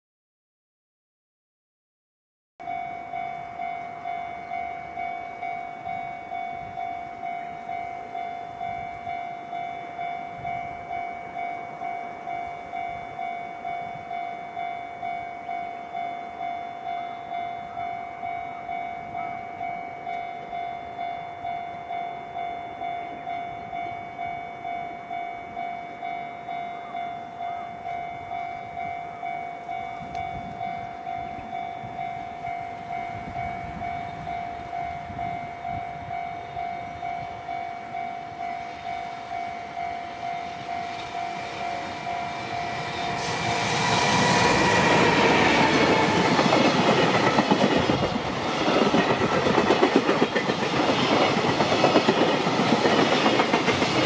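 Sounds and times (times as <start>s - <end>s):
level crossing warning bell: 2.6s - 54.0s
train running: 2.6s - 54.0s.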